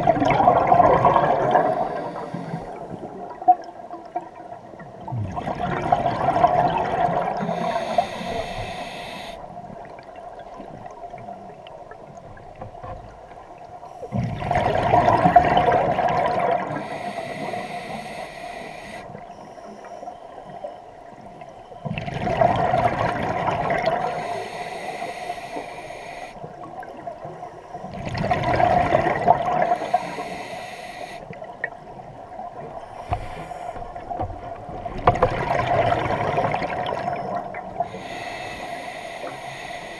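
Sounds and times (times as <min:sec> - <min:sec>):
exhaled bubbles rushing: 0:00.0 - 0:04.3, 0:05.0 - 0:07.6, 0:14.1 - 0:16.9, 0:21.9 - 0:24.2, 0:27.9 - 0:29.9, 0:33.9 - 0:37.9
regulator hiss: 0:01.6 - 0:02.8, 0:07.4 - 0:09.4, 0:16.8 - 0:19.2, 0:24.1 - 0:26.4, 0:29.7 - 0:31.3, 0:37.9 - 0:39.9.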